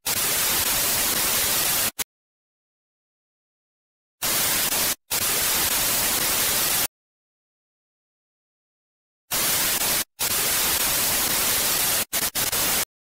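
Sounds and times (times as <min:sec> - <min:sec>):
tv static hiss: 0:00.1 - 0:02.0, 0:04.2 - 0:06.9, 0:09.3 - 0:12.9.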